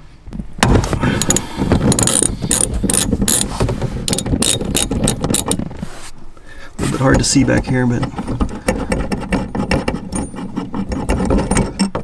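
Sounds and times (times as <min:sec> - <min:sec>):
ratchet wrench clicking: 0:01.2 - 0:03.5, 0:04.1 - 0:05.6.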